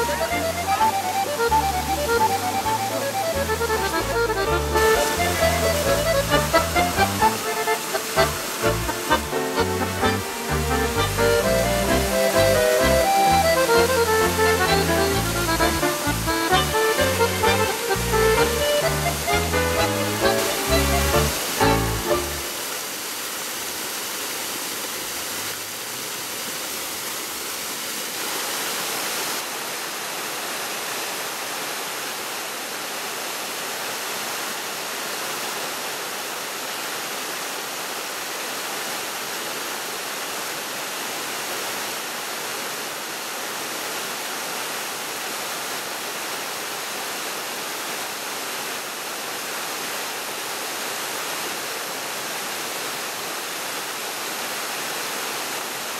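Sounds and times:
water splashing down ledges: 3.2 - 29.5.

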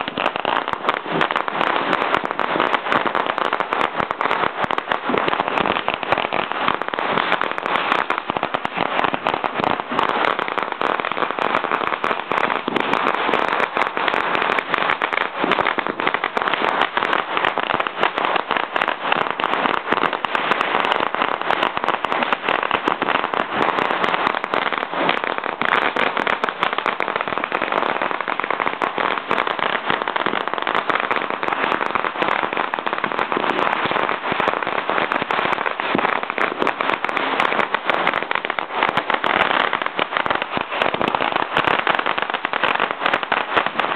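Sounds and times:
firecrackers crackling: 0.0 - 43.9.

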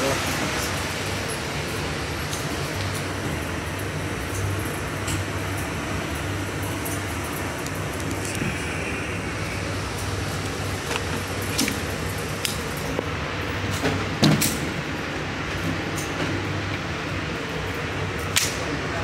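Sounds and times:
ventilation hum: 0.0 - 19.0.

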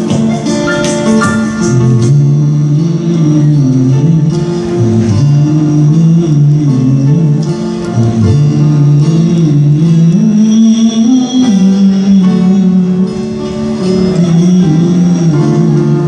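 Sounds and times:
acoustic guitar playing: 0.0 - 16.0
melody in long held notes: 0.0 - 16.0.

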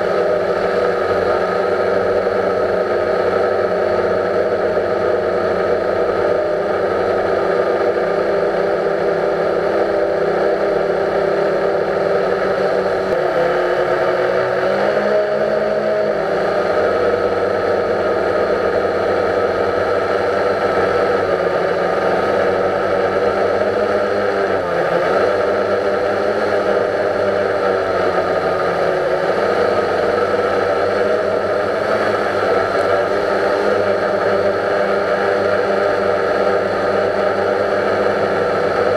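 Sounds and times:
drone propellers whirring: 0.0 - 38.9.

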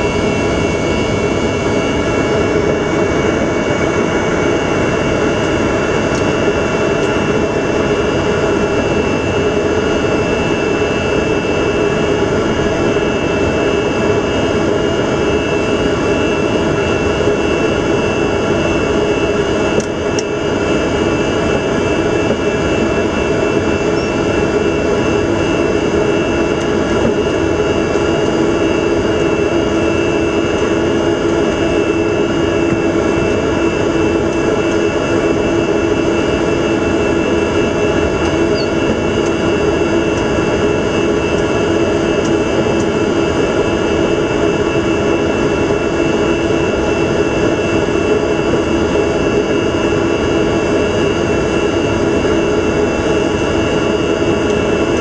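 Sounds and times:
aircraft engines low hum: 0.0 - 55.0
high engine whine: 0.0 - 55.0.

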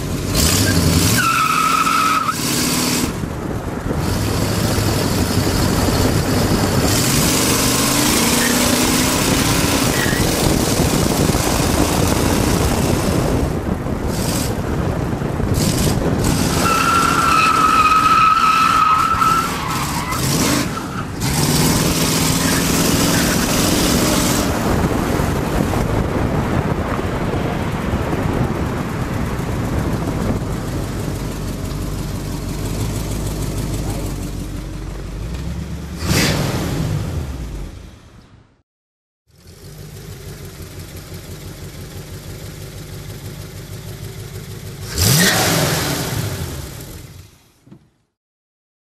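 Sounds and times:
car engine accelerating: 0.0 - 37.8, 39.3 - 47.2
wind and road noise: 0.0 - 38.6, 39.3 - 48.2
tyres squealing: 16.5 - 21.4.

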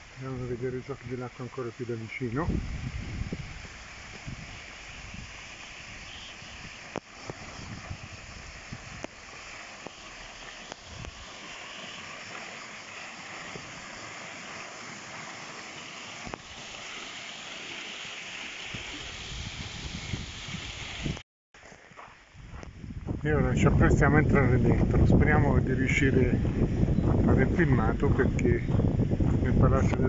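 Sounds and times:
water splashing down cascade: 0.0 - 21.2.

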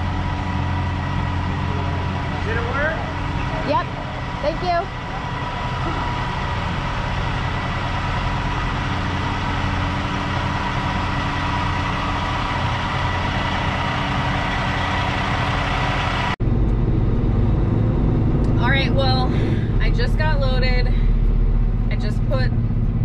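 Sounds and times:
diesel truck engine droning: 0.0 - 23.0
steady whine: 0.0 - 23.0
truck engine from inside cab: 0.0 - 23.0.

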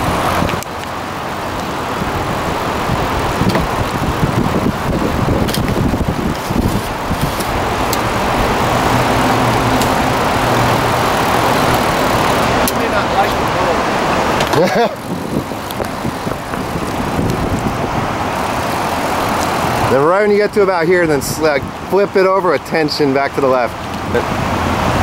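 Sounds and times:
wind on microphone: 0.0 - 21.9
flowing river water: 0.0 - 25.0.

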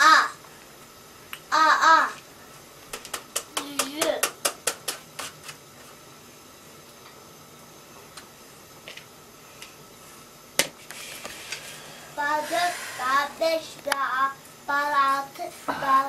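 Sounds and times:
child singing: 12.2 - 16.0.

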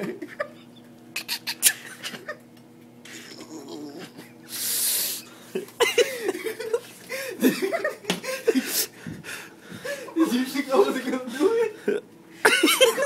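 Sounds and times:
high wavering laughing: 0.0 - 2.4
men laughing hard: 1.6 - 2.4, 5.6 - 9.0, 9.8 - 13.0.

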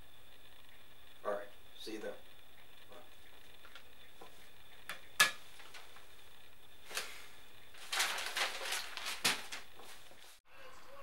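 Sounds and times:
newspaper pages rustling: 5.5 - 10.4.

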